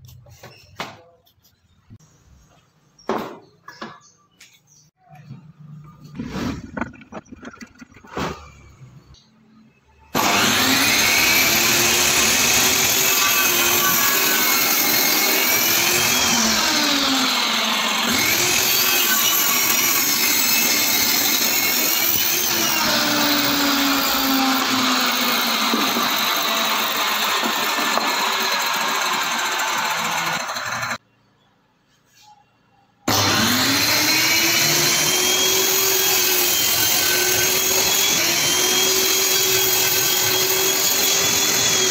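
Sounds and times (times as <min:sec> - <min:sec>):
table saw cutting wood: 0:10.2 - 0:31.0, 0:33.1 - 0:41.9.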